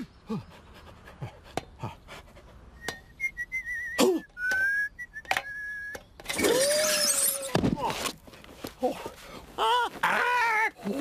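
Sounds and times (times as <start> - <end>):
person whistling a tune: 2.8 - 6.0.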